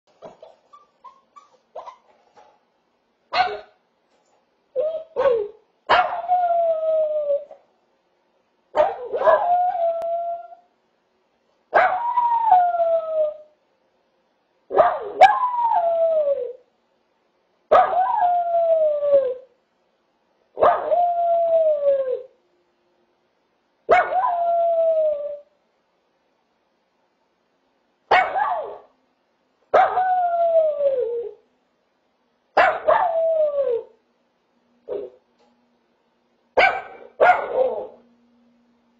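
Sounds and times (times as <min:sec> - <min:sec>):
puppy yipping: 0:00.2 - 0:02.1, 0:03.4 - 0:03.7, 0:04.8 - 0:06.3, 0:36.6 - 0:38.0
puppy howling: 0:04.8 - 0:07.6, 0:08.8 - 0:10.6, 0:11.9 - 0:13.5, 0:15.2 - 0:16.6, 0:17.8 - 0:19.5, 0:20.6 - 0:22.3, 0:24.0 - 0:25.5, 0:29.8 - 0:31.4, 0:32.8 - 0:34.0, 0:37.3 - 0:38.0.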